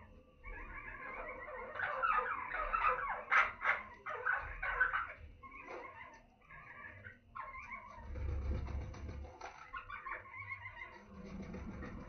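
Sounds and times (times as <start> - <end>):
budgerigars chirping and chattering: 0.4 - 8.0, 9.6 - 11.0.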